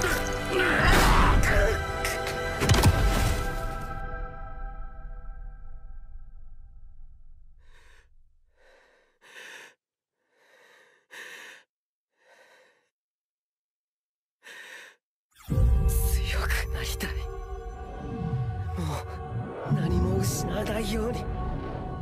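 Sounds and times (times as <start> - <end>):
person breathing heavily: 7.6 - 13.0, 14.4 - 15.0.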